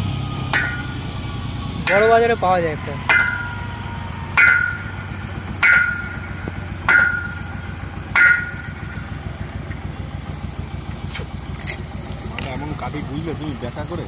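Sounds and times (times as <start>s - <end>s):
steady low hum: 0.0s - 14.0s
metallic bell-like strikes: 0.5s - 1.1s, 3.1s - 3.8s, 4.4s - 9.0s.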